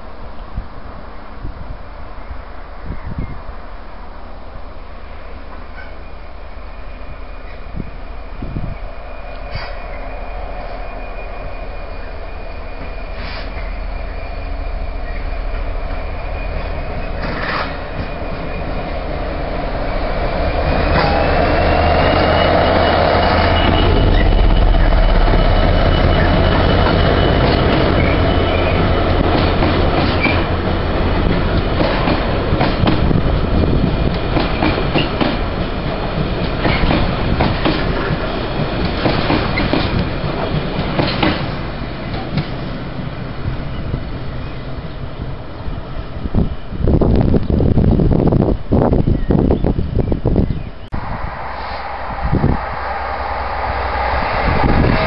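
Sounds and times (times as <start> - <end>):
diesel locomotive engine rumble: 0.0 - 55.0
thin high whine: 5.9 - 29.2, 51.0 - 55.0
train wheels clattering over rail joints: 16.6 - 18.9, 25.3 - 42.7.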